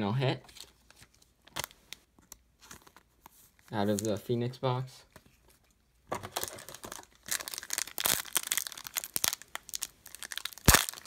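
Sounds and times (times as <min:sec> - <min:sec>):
foil pack crinkling and tearing: 0:06.3 - 0:11.0.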